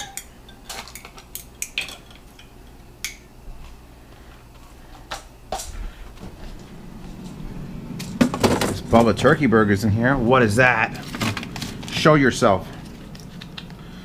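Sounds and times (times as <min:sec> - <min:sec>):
dishes clinking: 0:00.0 - 0:03.2
low hum: 0:00.0 - 0:14.0.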